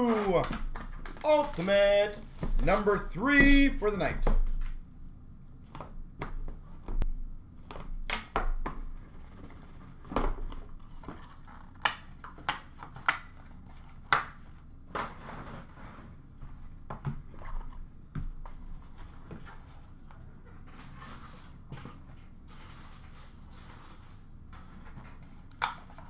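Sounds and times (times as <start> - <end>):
cardboard and packaging rustling: 0.0 - 3.8, 9.0 - 14.0.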